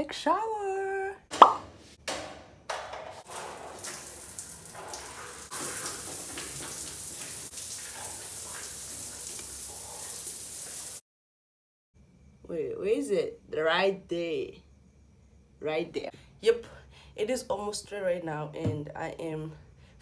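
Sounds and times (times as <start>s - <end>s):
shower water running: 3.2s - 11.0s.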